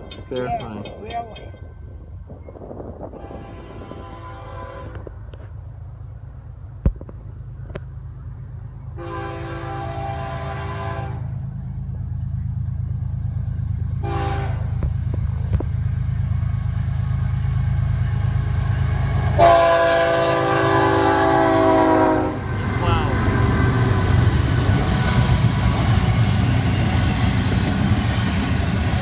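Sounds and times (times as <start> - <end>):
diesel engine rumble: 1.8 - 29.0
locomotive air horn blasts: 3.0 - 5.2, 9.0 - 11.4, 14.0 - 14.8, 19.3 - 22.5.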